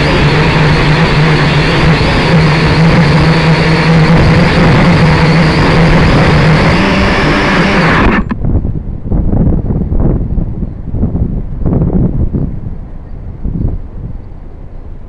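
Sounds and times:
drone motors buzzing: 0.0 - 8.4
wind buffeting microphone: 0.0 - 15.0.

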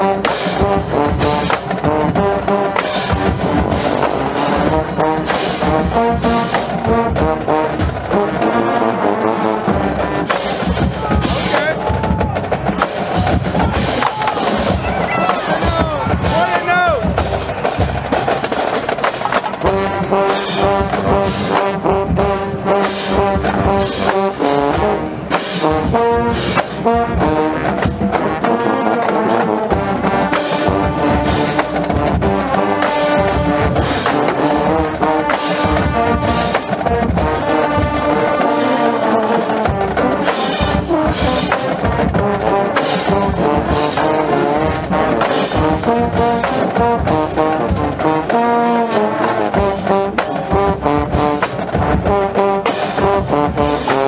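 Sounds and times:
marching band brass: 0.0 - 54.0
trombones: 0.0 - 54.0
drum hits: 9.8 - 38.2, 39.2 - 54.0.

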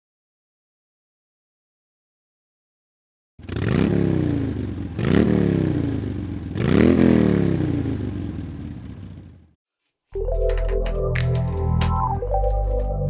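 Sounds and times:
motorcycle engine idling and revving: 3.4 - 9.6.

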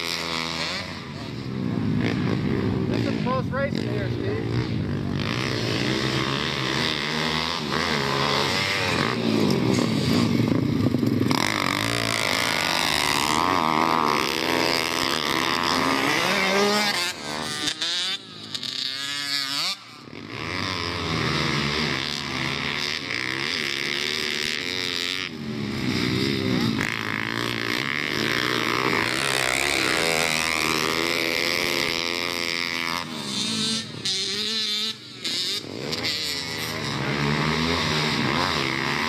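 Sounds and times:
pit bike engines revving: 0.0 - 39.0.

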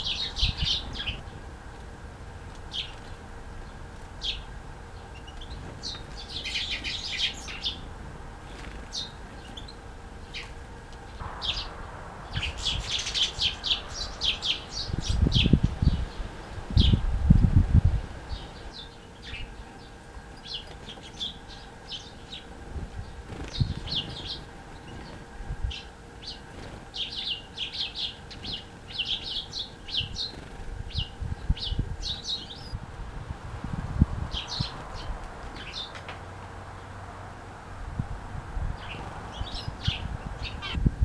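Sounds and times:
songbirds chirping: 0.0 - 40.9
wings fluttering: 5.2 - 16.9, 19.5 - 32.7.

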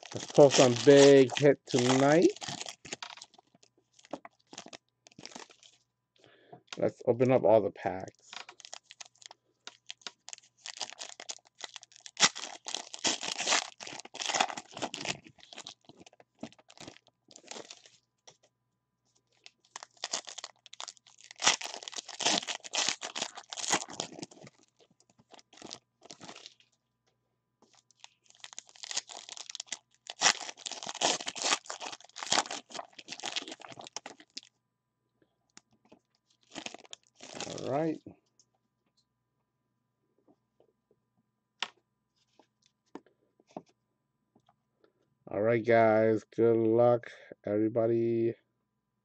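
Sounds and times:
foil wrappers tearing and crinkling: 0.0 - 5.8, 8.2 - 18.0, 19.3 - 26.7, 27.7 - 34.5, 35.9 - 37.8.

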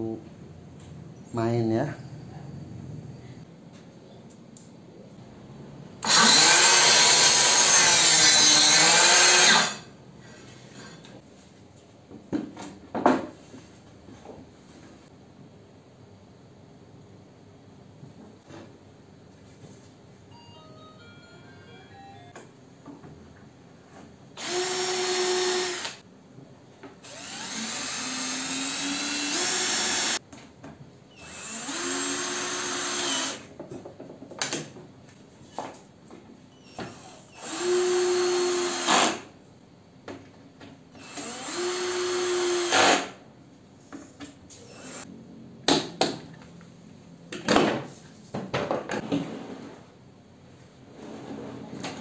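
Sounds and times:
cordless drill drilling into wood: 6.0 - 9.8, 24.4 - 26.0, 27.0 - 30.2, 31.2 - 33.4, 36.9 - 39.2, 41.0 - 43.1.

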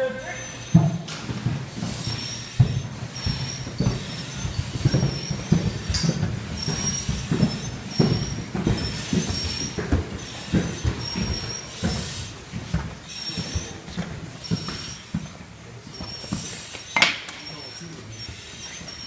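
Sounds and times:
air regulator high tone: 0.0 - 12.3, 13.1 - 19.0
heavy breathing through masks: 0.3 - 15.3
heavy boot steps on stairs: 0.6 - 15.4.

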